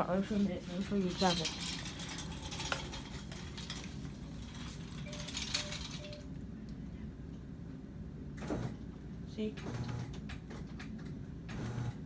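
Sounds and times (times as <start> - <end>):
steady low hum: 0.0 - 12.0
bed rail clicking and rattling: 0.8 - 6.2.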